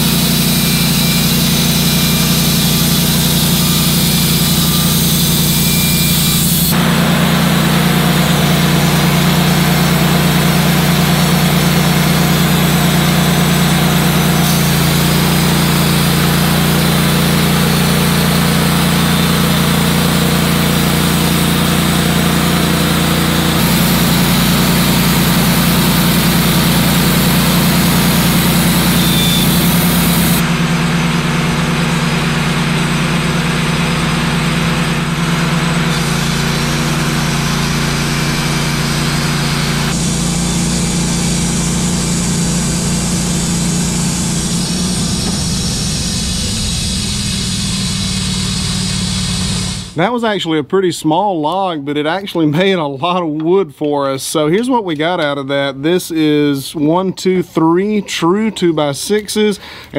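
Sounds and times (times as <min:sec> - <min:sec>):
sawdust hissing: 0:00.0 - 0:30.4, 0:36.0 - 0:50.1
sawmill engine running: 0:00.0 - 0:50.2
band blade cutting log: 0:21.0 - 0:30.4.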